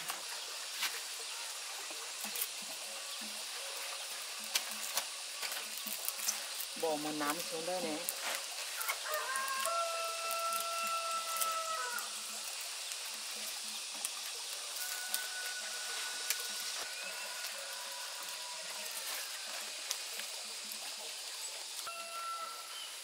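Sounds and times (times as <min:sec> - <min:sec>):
rural background hiss: 0:00.0 - 0:23.0
faint distant calls: 0:08.3 - 0:23.0
rooster crowing: 0:08.7 - 0:12.5, 0:14.6 - 0:19.9, 0:21.8 - 0:23.0.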